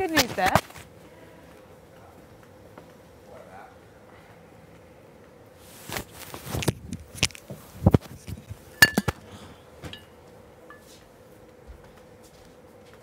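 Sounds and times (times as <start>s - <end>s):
rustling: 5.6s - 9.2s
sharp knocks and clinks: 8.8s - 9.2s.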